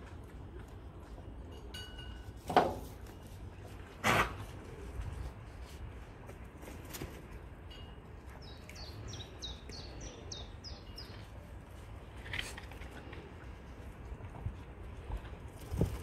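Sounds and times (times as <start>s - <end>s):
songbird chirping: 8.3s - 11.5s.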